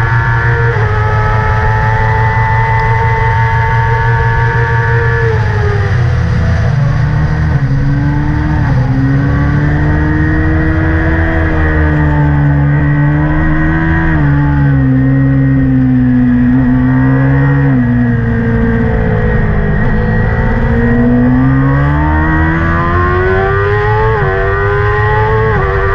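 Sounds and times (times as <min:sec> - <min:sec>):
motorcycle engine accelerating: 0:00.0 - 0:25.9.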